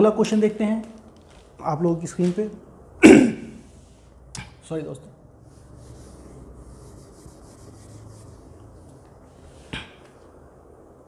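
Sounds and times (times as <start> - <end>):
duster scrubbing whiteboard: 5.4 - 9.6.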